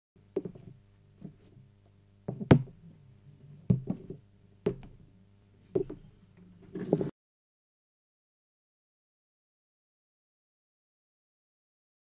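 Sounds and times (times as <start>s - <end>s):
faint low hum: 0.2s - 7.1s.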